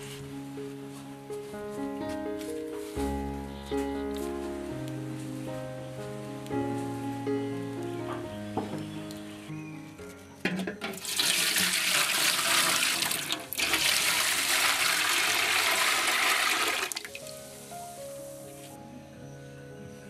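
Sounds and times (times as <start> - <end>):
liquid pouring into pot: 11.0 - 17.2.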